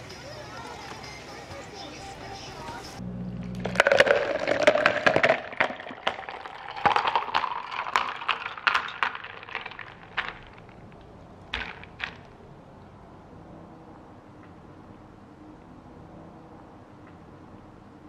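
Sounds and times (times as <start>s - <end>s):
tea pouring into plastic cup: 3.6s - 10.6s.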